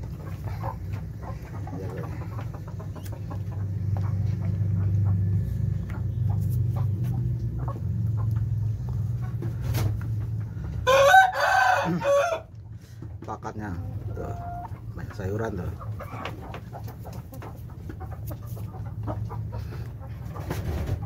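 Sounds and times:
chickens pecking plastic tray: 0.0s - 10.6s, 13.0s - 21.0s
steady low hum: 0.0s - 10.9s
rooster crowing: 10.8s - 12.5s.

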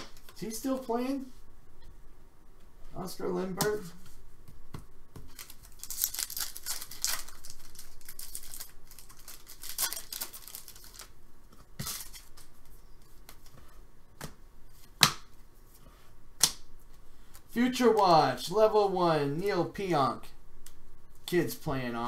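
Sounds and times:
cards handled: 4.7s - 13.6s
wrapper crinkling and tearing: 5.3s - 11.2s, 11.8s - 12.4s.

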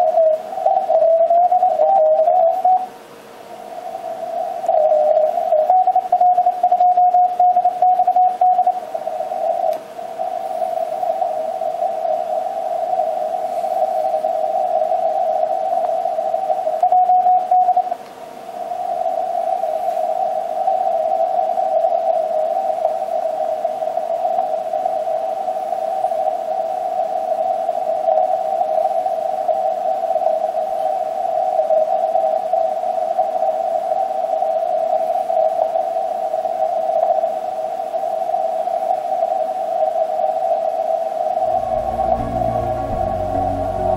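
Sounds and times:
morse code tone: 41.4s - 43.9s.

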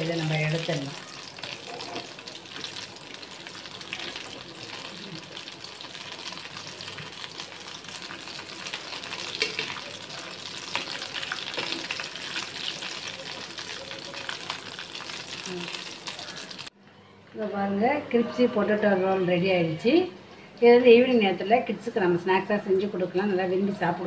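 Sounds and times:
hot oil sizzling and crackling: 0.0s - 16.7s
metal spoon stirring: 1.5s - 2.2s, 8.7s - 10.0s.

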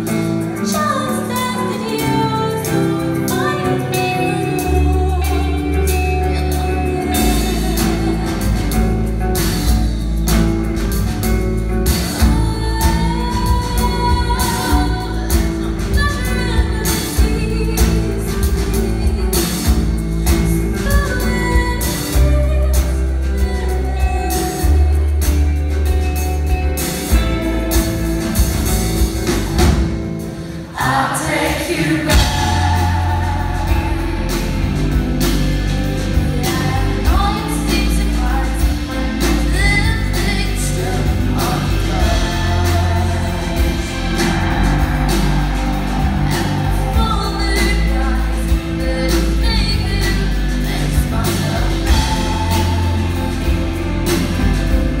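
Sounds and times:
rock band playing live: 0.0s - 55.0s
lead vocals singing: 30.4s - 55.0s.

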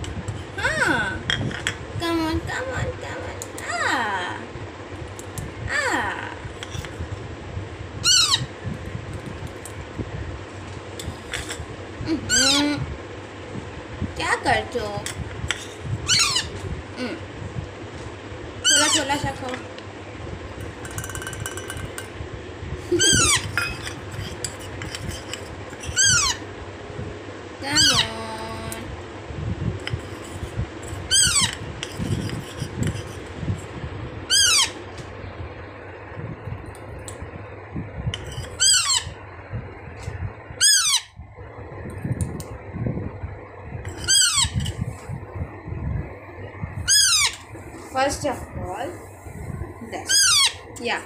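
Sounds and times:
parakeet chick begging calls: 8.0s - 8.5s, 12.3s - 12.7s, 16.1s - 16.6s, 18.6s - 19.1s, 23.0s - 23.5s, 25.9s - 26.4s, 27.7s - 28.2s, 31.1s - 31.6s, 34.3s - 34.8s, 38.6s - 39.2s, 40.6s - 41.2s, 44.0s - 44.6s, 46.8s - 47.4s, 50.1s - 50.7s
spoon clinking against bowl: 20.6s - 22.1s.

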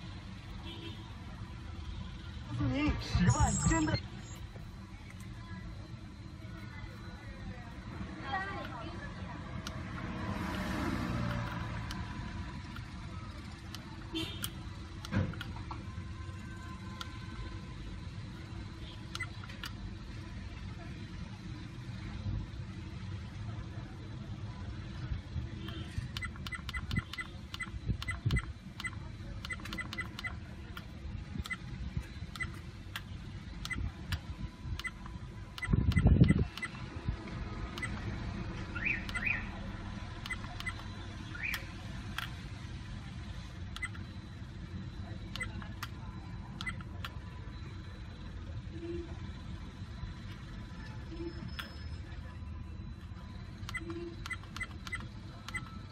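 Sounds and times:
short electronic beeps: 2.9s - 4.6s, 25.6s - 30.4s, 33.5s - 33.9s, 34.8s - 37.0s, 37.6s - 41.9s, 43.7s - 55.9s
button clicks: 38.9s - 39.4s.

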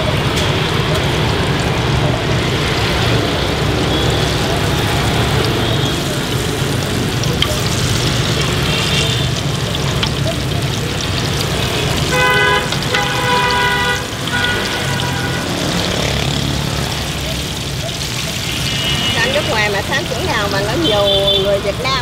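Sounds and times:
fritters sizzling in oil: 0.0s - 22.0s
street traffic: 0.0s - 22.0s
vehicle horn honking: 12.1s - 15.6s, 18.5s - 19.6s.

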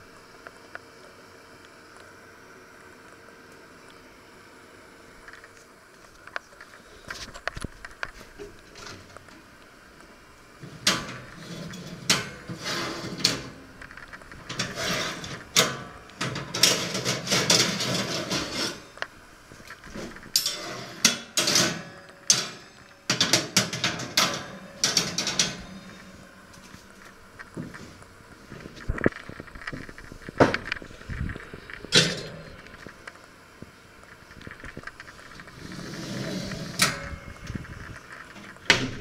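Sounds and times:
oven racks clanking and scraping: 8.1s - 9.5s, 10.6s - 19.0s, 19.6s - 33.0s, 34.4s - 39.0s.

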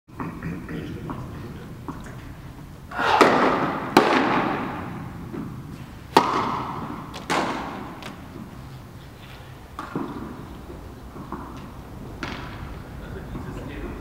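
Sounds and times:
tennis racket striking ball with echo: 3.0s - 8.6s.

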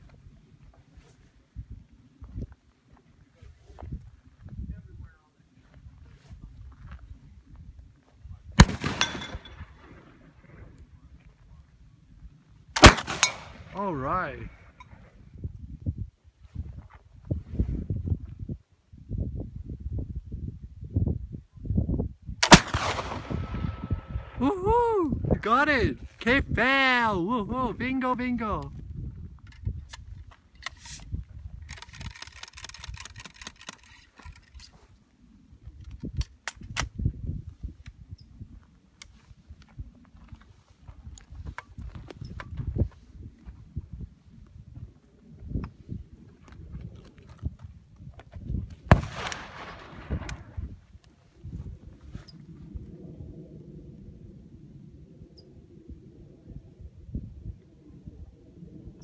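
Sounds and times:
rifle firing: 8.6s - 9.5s, 12.8s - 13.7s, 22.4s - 23.8s, 48.9s - 50.5s
sharp crack with metallic ring: 8.6s - 9.6s
ramrod clicks and scrapes in rifle: 29.4s - 34.8s.

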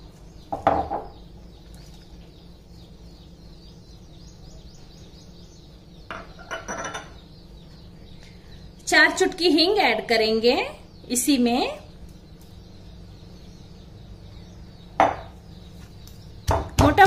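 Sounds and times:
glass bowl knocking on stone mortar: 6.1s - 7.1s, 15.0s - 15.3s.

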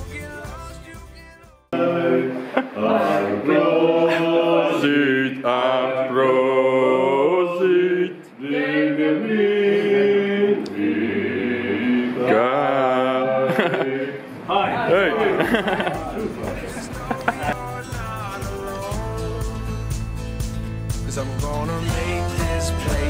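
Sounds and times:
group singing unaccompanied: 1.7s - 14.5s, 15.5s - 19.2s, 21.8s - 23.0s.

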